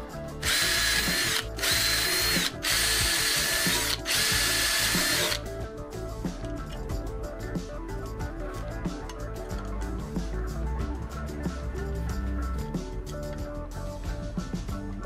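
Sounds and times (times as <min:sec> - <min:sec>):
background music: 0:00.0 - 0:15.0
cordless drill drilling metal: 0:00.4 - 0:05.4.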